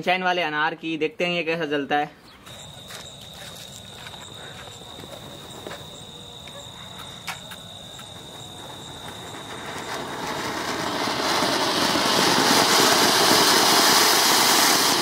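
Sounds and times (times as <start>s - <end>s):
firework fountain hissing: 2.5s - 15.0s.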